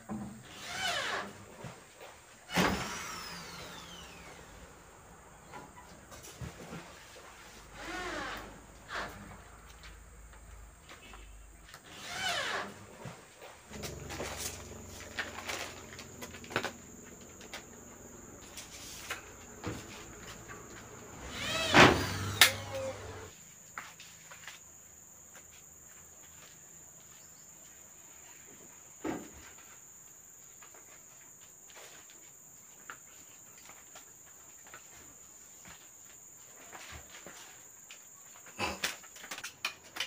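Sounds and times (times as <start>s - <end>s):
crickets droning: 0.0s - 40.0s
loud squeaking scrape: 7.8s - 9.3s, 11.1s - 12.8s, 18.3s - 23.3s
low hum: 13.7s - 23.3s.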